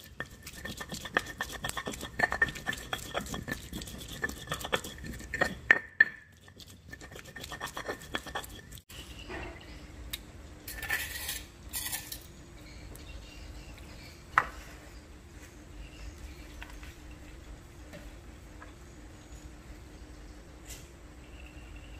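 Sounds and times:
stone pestle grinding in mortar: 0.0s - 8.8s.

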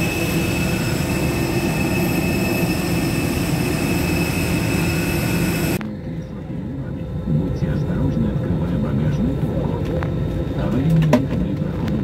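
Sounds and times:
high whining tones: 0.0s - 10.8s
jet turbine rumble: 0.0s - 12.0s.

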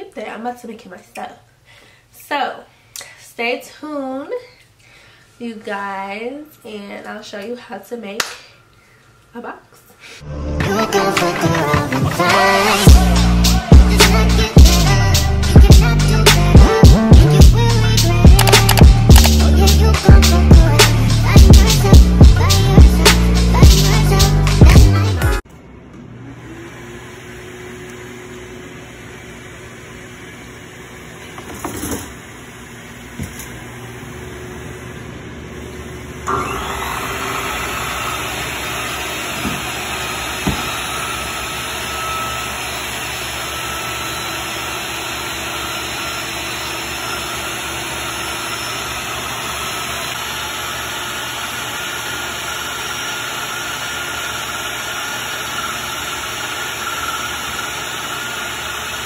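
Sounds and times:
panel saw motor whining: 12.2s - 16.2s, 36.1s - 59.0s.

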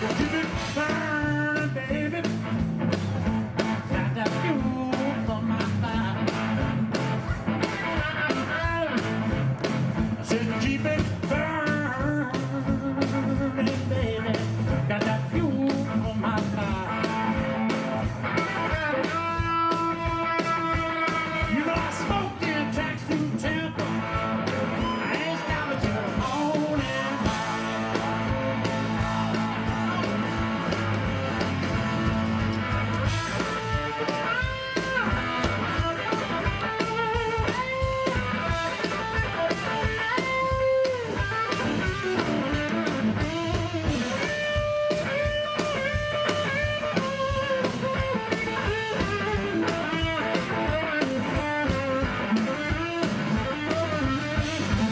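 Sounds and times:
bass guitar: 0.0s - 54.9s
drums: 0.0s - 54.9s
electric guitar solo: 23.7s - 54.9s.

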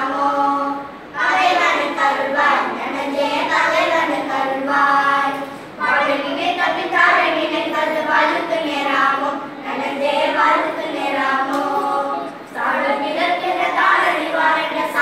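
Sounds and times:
girls singing unaccompanied: 0.0s - 15.0s.

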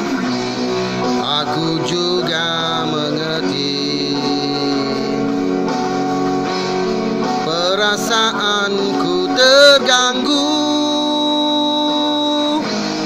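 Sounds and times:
rock band with electric guitar: 0.0s - 13.0s
man singing: 1.0s - 5.8s, 7.2s - 12.8s.

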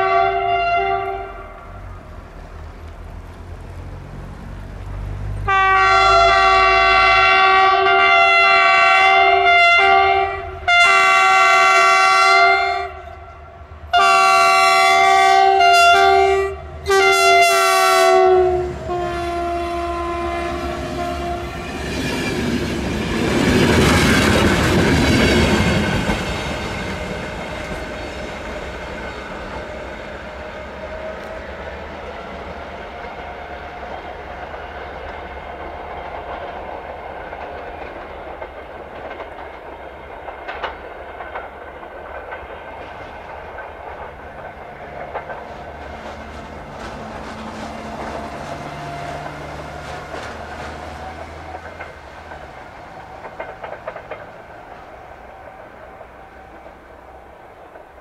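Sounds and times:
locomotive air horn blasts: 0.0s - 1.7s, 5.5s - 21.8s
train wheels clattering over rails: 19.5s - 58.0s.

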